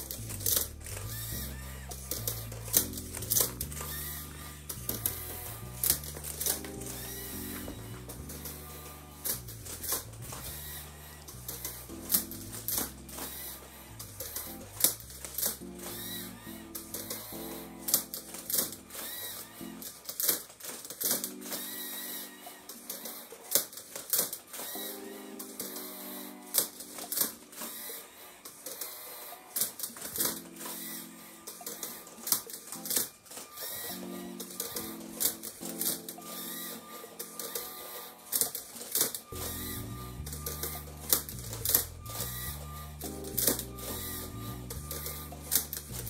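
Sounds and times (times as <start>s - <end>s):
background music: 0.0s - 46.0s
motors whirring through gearing: 0.0s - 46.0s
sharp plastic clacks: 17.9s - 21.7s, 22.7s - 24.8s
bass line: 39.4s - 46.0s.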